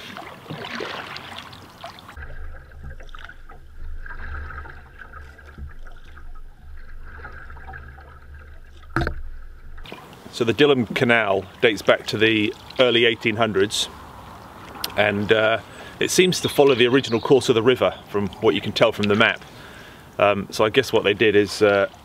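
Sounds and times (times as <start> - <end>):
paddle strokes in water: 0.0 - 13.0
water trickling and swishing: 0.0 - 22.0.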